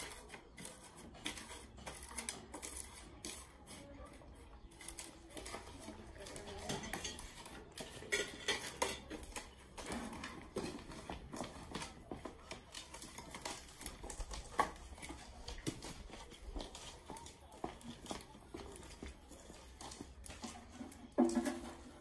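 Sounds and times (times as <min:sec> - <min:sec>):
pots and pans clinking: 0:06.1 - 0:11.1, 0:20.3 - 0:22.0.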